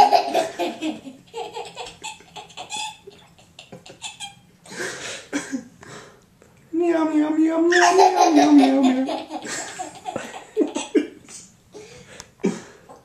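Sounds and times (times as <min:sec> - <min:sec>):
toddler laughing: 0:00.0 - 0:04.4, 0:07.8 - 0:11.0.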